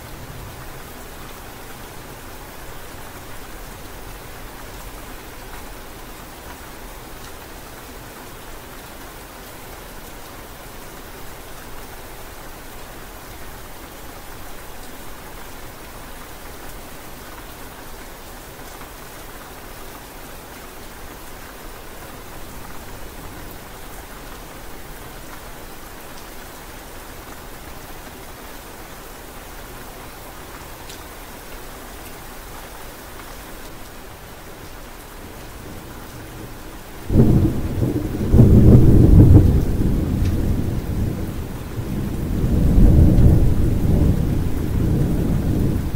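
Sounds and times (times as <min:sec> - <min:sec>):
rain falling: 0:00.0 - 0:45.9
raindrop ticks: 0:39.4 - 0:40.4.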